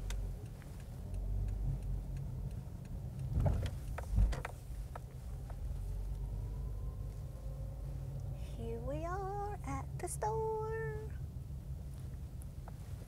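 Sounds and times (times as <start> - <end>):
light ticks: 0.0 - 6.3
car engine rumble from inside: 0.0 - 13.0.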